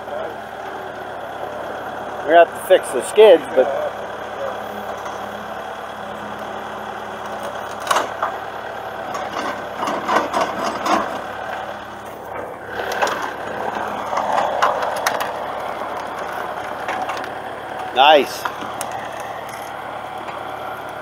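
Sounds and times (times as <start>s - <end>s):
steady background noise: 0.0s - 21.0s
wood and metal knocks and clanks: 9.1s - 11.2s.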